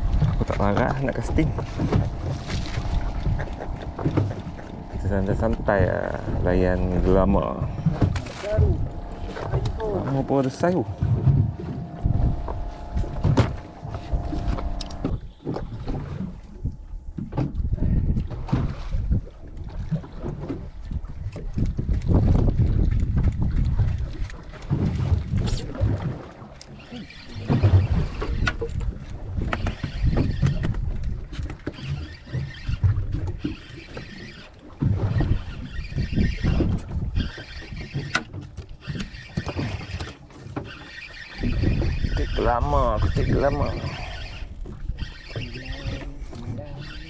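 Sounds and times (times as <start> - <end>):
wind buffeting microphone: 0.0 - 26.4, 27.2 - 47.0
water lapping against boat hull: 0.0 - 47.0.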